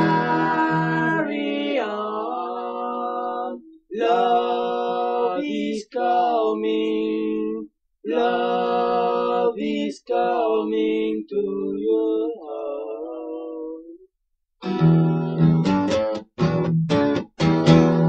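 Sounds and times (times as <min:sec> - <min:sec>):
voices singing in harmony: 0:00.0 - 0:14.1.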